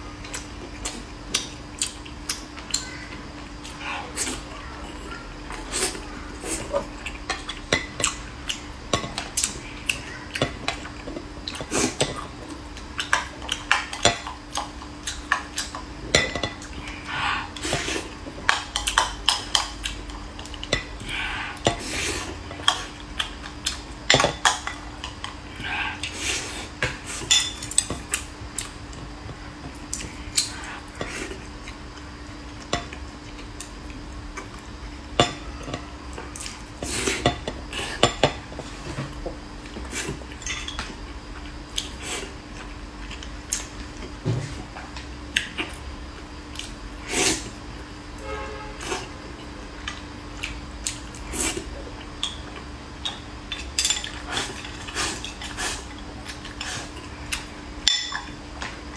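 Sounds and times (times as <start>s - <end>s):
utensils clinking on dishes: 15.3s - 16.9s, 24.1s - 25.3s, 27.1s - 28.0s, 35.2s - 35.9s, 40.3s - 41.0s, 52.2s - 56.9s, 57.8s - 58.4s
chewing and mouth sounds: 27.6s - 34.8s, 49.4s - 57.5s.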